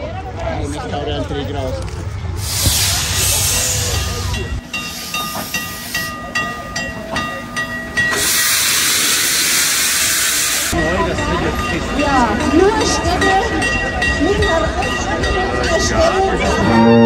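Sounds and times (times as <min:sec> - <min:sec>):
steam locomotive rolling: 0:01.2 - 0:17.0
steam hissing: 0:02.4 - 0:06.6, 0:08.1 - 0:10.8.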